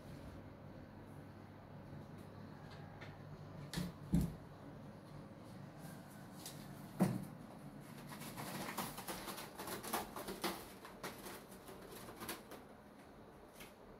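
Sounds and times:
cat claws scratching board: 7.8 - 12.8.

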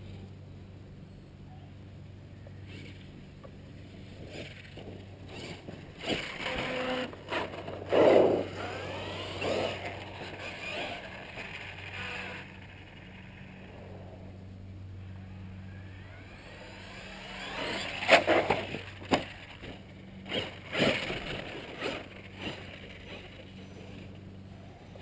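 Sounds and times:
electric motor whining: 2.6 - 3.2, 3.8 - 14.4, 15.0 - 25.0.

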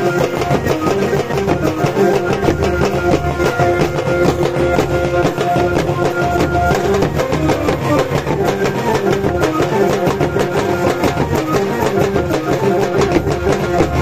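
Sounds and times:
barrel drums beaten fast: 0.0 - 14.0
frame drums struck with sticks: 0.0 - 14.0
melody of held notes: 1.8 - 8.9.

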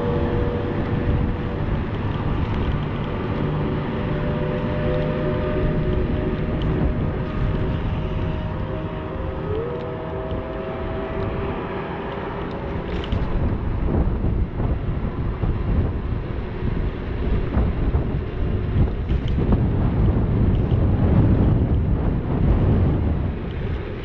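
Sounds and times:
electric motor whine: 0.0 - 16.0
tyres rolling on pavement: 0.0 - 19.8
wind rushing over microphone: 0.0 - 24.0.

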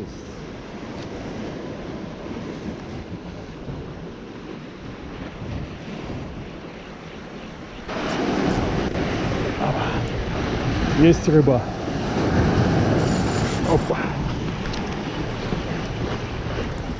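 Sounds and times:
waves breaking against rocks: 0.0 - 16.9
wind buffeting microphone: 0.0 - 16.9.

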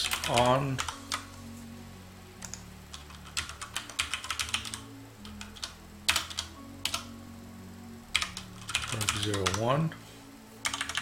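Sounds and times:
keyboard typing: 0.0 - 1.3, 2.4 - 7.1, 8.1 - 9.7, 10.6 - 11.0
low steady hum: 0.0 - 11.0.

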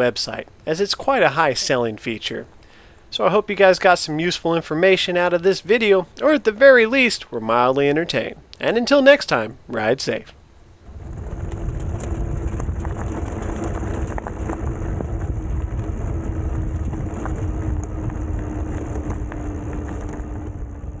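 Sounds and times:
electric motor whine: 10.8 - 21.0
tires crunching over gravel: 10.8 - 21.0
wind on microphone: 10.8 - 21.0.

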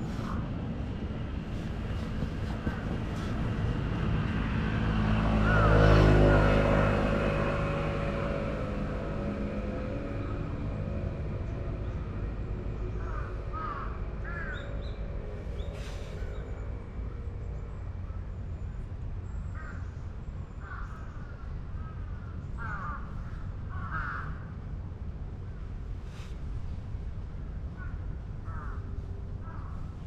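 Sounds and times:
steady low rumble: 0.0 - 30.0
crows cawing: 5.3 - 6.2, 13.0 - 14.7, 20.6 - 21.1, 21.8 - 24.5, 27.8 - 29.8.

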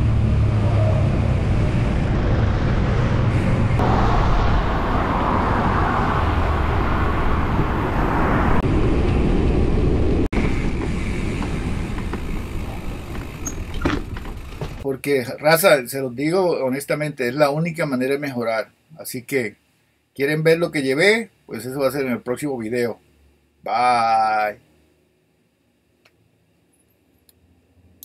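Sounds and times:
wind noise: 0.0 - 14.8
traffic rumble: 0.0 - 14.9.

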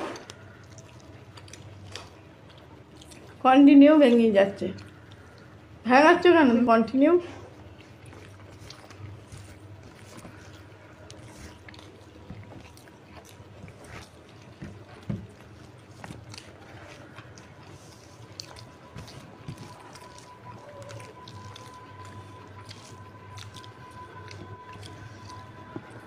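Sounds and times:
chewing and wet mouth clicks: 0.2 - 3.4, 4.7 - 5.6, 7.7 - 26.0
fingers mixing rice: 7.6 - 26.0.

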